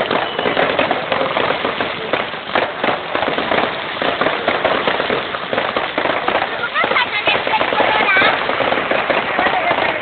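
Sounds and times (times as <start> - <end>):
fireworks bangs and crackling: 0.0 - 10.0.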